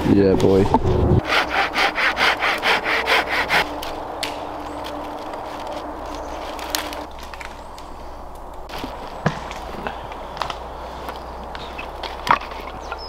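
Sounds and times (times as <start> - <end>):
hand saw cutting a branch: 1.2 - 7.2
twigs snapping: 3.6 - 13.0.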